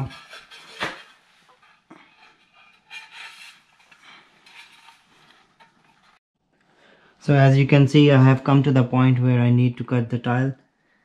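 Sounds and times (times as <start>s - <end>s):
hands scraping tile: 0.0s - 6.2s.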